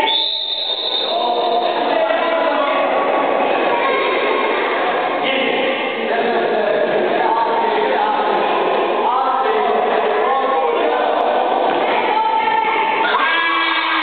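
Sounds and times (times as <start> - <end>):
crowd shouting and cheering: 0.0 - 6.2, 7.1 - 14.0.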